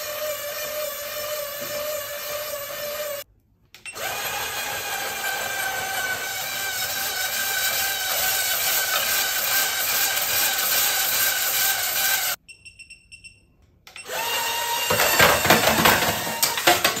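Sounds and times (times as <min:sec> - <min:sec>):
small motor whining: 0:00.0 - 0:03.2, 0:03.9 - 0:12.4.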